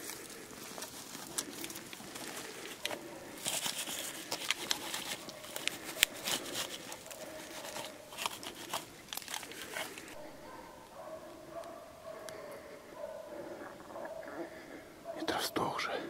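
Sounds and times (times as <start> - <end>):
twigs snapping underfoot: 0.0 - 10.2
brush scraping clothing: 0.0 - 10.8.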